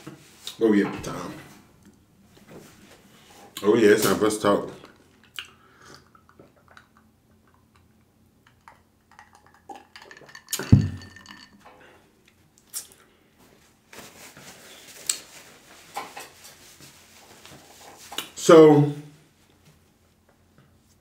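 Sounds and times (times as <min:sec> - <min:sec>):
paper napkin rustling: 0:13.4 - 0:18.4.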